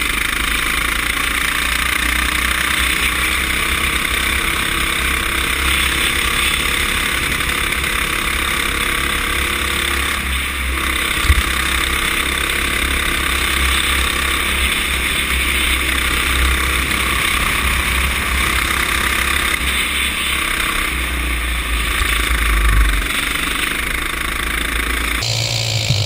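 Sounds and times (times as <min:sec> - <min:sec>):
go-kart engine running: 0:00.0 - 0:26.0.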